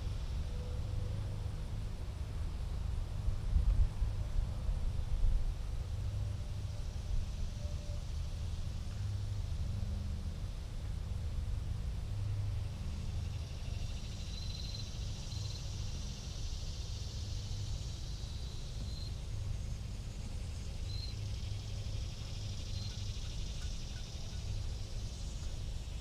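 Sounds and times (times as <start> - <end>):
high insect-like hiss: 12.6 - 26.0.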